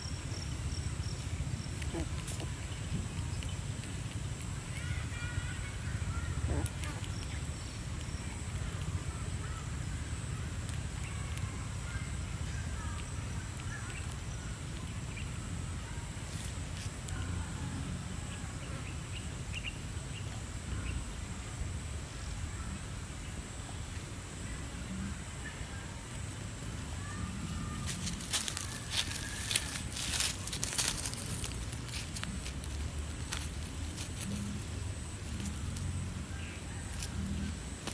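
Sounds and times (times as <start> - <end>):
faint chirps: 0.0 - 37.9
low rumble of wind on microphone: 0.0 - 37.9
sharp clicks and crackles: 6.5 - 15.3, 26.1 - 36.0, 36.9 - 37.9.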